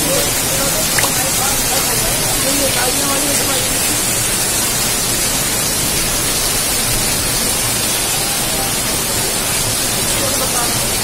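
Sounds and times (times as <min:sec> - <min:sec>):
heavy rain pouring: 0:00.0 - 0:11.0.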